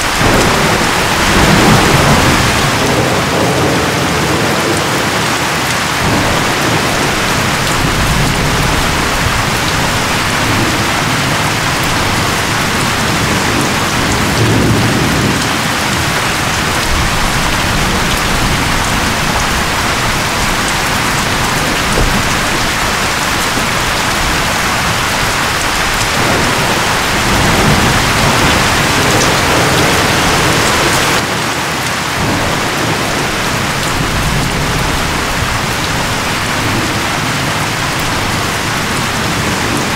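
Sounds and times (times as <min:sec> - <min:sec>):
low thunder rumble: 0:00.0 - 0:31.2, 0:32.2 - 0:39.9
gusting wind: 0:00.0 - 0:39.9
heavy rain: 0:00.0 - 0:39.9.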